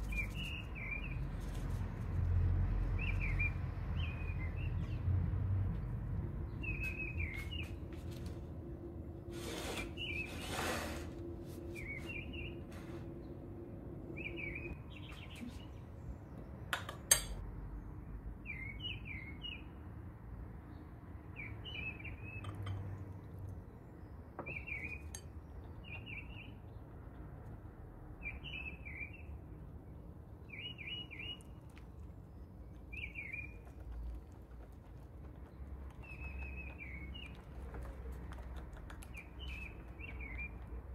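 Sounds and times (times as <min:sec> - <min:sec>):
small birds chirping: 0:00.0 - 0:01.8, 0:06.5 - 0:07.9, 0:14.2 - 0:16.6, 0:21.3 - 0:26.9, 0:30.4 - 0:40.9
sharp clink: 0:16.8 - 0:17.4.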